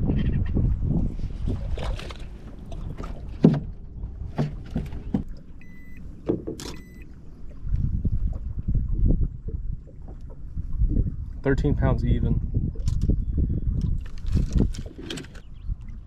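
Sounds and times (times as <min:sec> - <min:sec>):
low wind and water rumble: 0:00.0 - 0:16.0
handling knocks on boat deck: 0:03.4 - 0:03.7, 0:04.3 - 0:05.3
short electronic beep: 0:05.6 - 0:06.0, 0:06.7 - 0:07.1.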